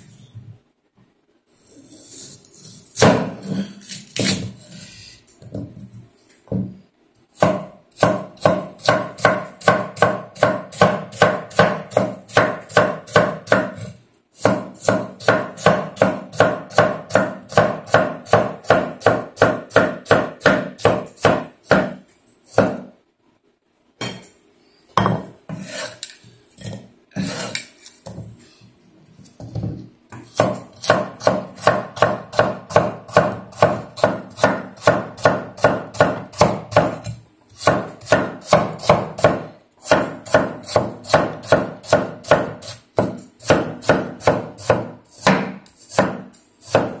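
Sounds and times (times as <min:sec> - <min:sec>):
cleaver chopping on wooden board: 0:30.2 - 0:46.9.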